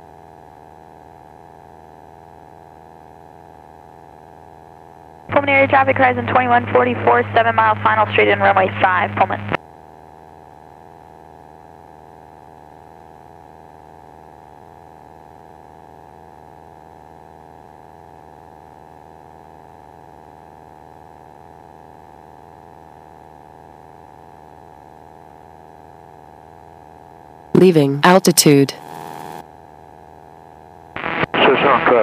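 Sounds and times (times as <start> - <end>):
light aircraft hum over intercom: 5.3 - 9.6, 31.0 - 32.0.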